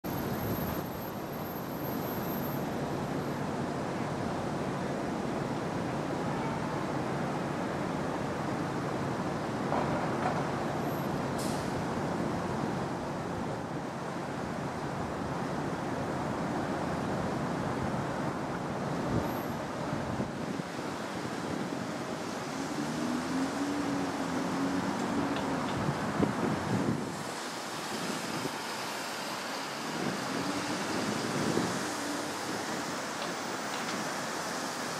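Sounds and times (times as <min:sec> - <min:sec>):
distant traffic roar: 0:00.0 - 0:34.9
wind buffeting microphone: 0:24.8 - 0:28.6, 0:29.7 - 0:34.0.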